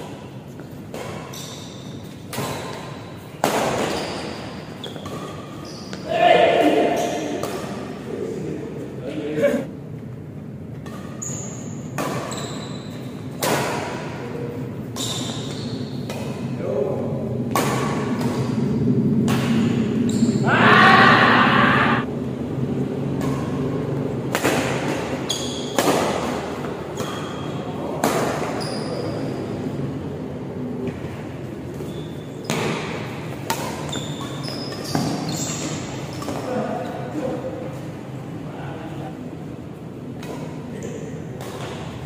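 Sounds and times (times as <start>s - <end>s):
rackets hitting shuttlecock: 0.0s - 6.0s, 6.6s - 8.0s, 10.7s - 16.6s, 17.4s - 20.2s, 23.1s - 28.6s, 31.7s - 36.6s, 40.1s - 42.0s
hum of large hall: 0.0s - 42.0s.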